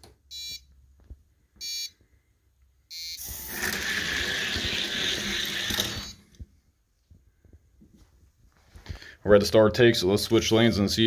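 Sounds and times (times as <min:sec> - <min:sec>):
electronic beeps: 0:01.6 - 0:01.9, 0:02.9 - 0:03.5
toy car wheels rumbling on track: 0:03.3 - 0:06.2.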